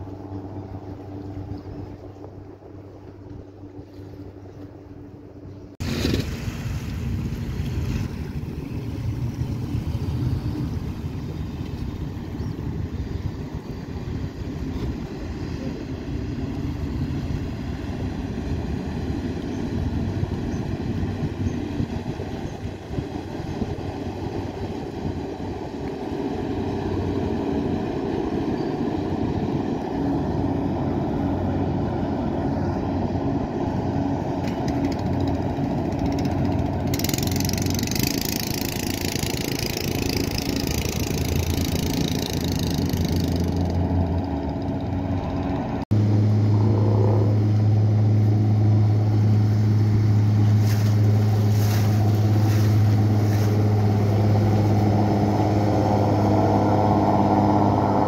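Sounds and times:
boat engine drone: 0:00.0 - 0:58.0
low boat engine hum: 0:00.0 - 0:58.0
rush of boat wake: 0:00.0 - 0:58.0.

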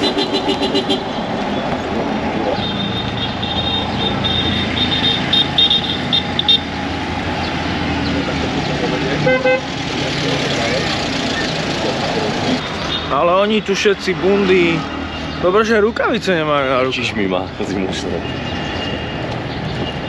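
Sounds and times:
city traffic engines: 0:00.0 - 0:20.0
car horn toots: 0:02.6 - 0:06.7, 0:09.2 - 0:09.7.

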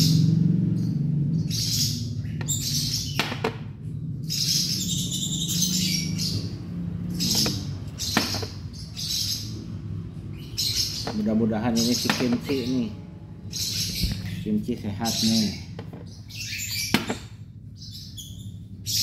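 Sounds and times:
low steady hum: 0:00.0 - 0:19.0
squirrel squeaking: 0:04.3 - 0:19.0.

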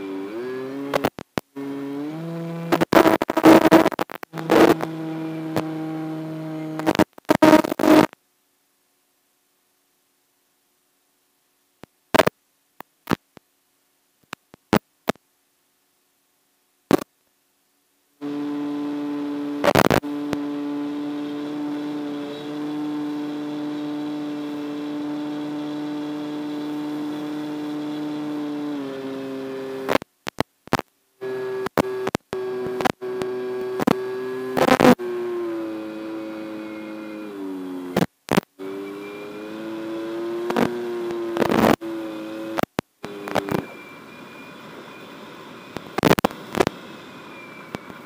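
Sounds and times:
rc plane electric motor whine: 0:18.2 - 0:29.9.

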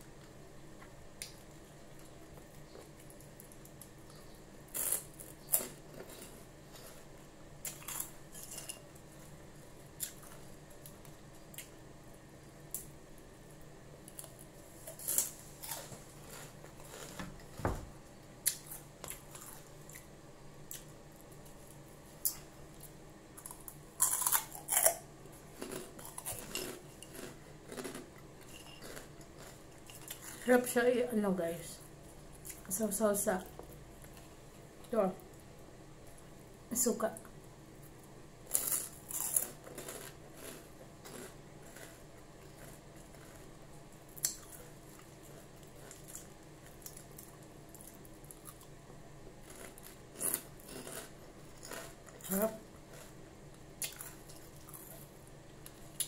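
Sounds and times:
pork rinds crunching: 0:23.4 - 0:25.0, 0:25.6 - 0:30.3, 0:38.5 - 0:43.5.

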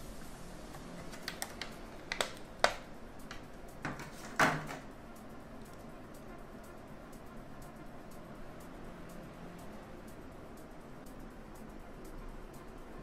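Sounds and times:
plastic packaging rustling: 0:01.0 - 0:02.8.

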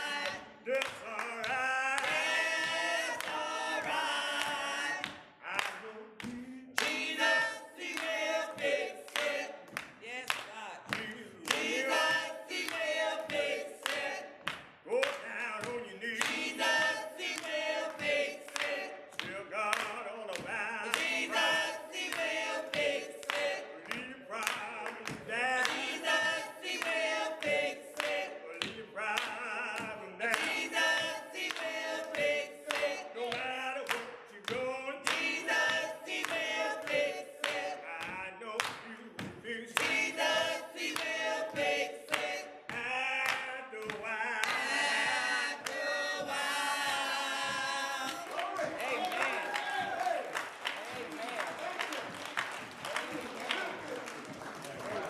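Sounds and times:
group singing gospel a cappella: 0:00.0 - 0:50.5
hand-clapping in time: 0:00.0 - 0:55.0.

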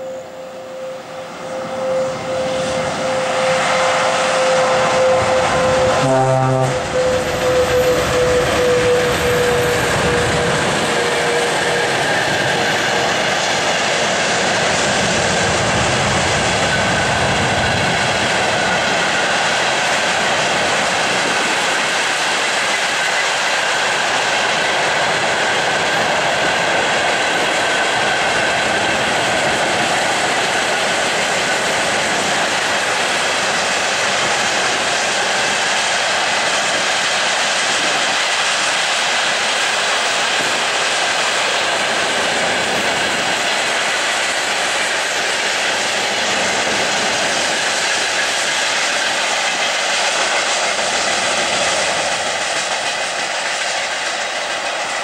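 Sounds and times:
strong steady tone: 0:00.0 - 0:10.4
freight train rolling past: 0:00.0 - 0:55.0.

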